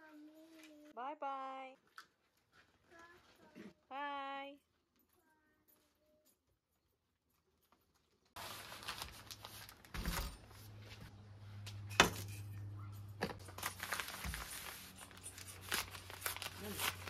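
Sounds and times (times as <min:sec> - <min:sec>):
paper crinkling: 0:07.4 - 0:10.8, 0:13.4 - 0:17.0.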